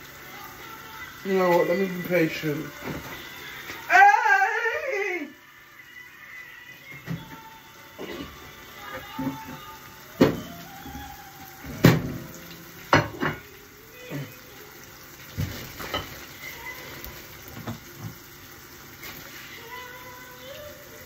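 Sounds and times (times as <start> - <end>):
omelette sizzling in a pan: 0.0 - 21.0
kitchen knocks and clatters: 2.8 - 3.2, 10.2 - 11.0, 11.6 - 13.5, 15.3 - 16.3, 17.5 - 18.2.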